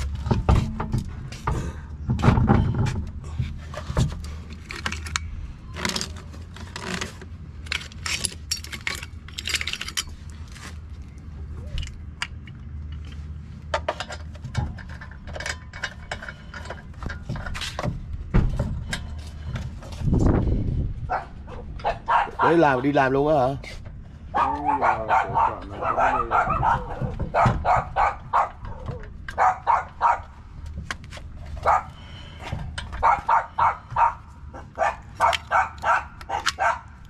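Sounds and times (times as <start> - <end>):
lug nuts clinking and rattling: 0.0 - 10.7, 11.7 - 20.2.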